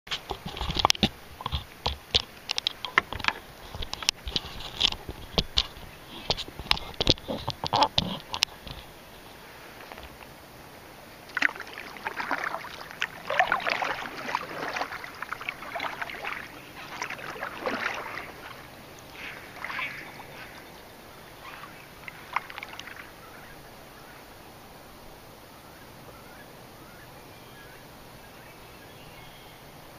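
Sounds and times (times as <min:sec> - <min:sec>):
kayak paddle splashing: 0:00.1 - 0:24.4
water dripping: 0:11.2 - 0:20.8, 0:21.6 - 0:23.1.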